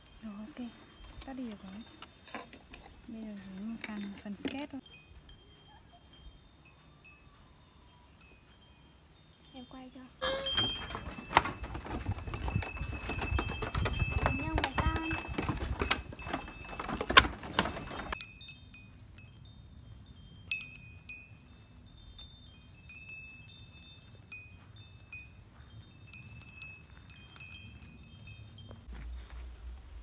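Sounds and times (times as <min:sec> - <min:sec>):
metal chimes ringing: 0:04.6 - 0:17.0, 0:17.6 - 0:28.9
hooves clattering on bamboo stairs: 0:10.2 - 0:18.2.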